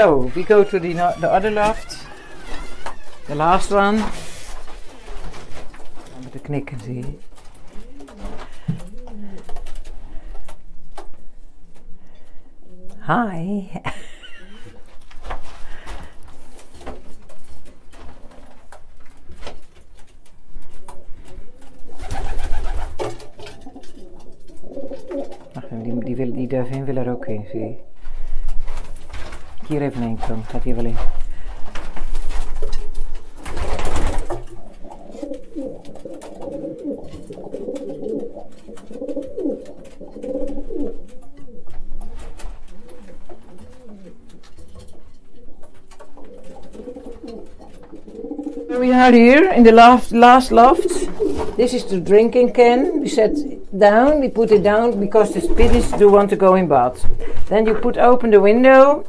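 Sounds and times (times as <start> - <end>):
rustling: 0.0 - 13.0, 13.9 - 25.6, 27.9 - 58.9
pigeons cooing: 7.7 - 10.4, 20.8 - 26.0, 34.2 - 49.2, 50.5 - 53.8.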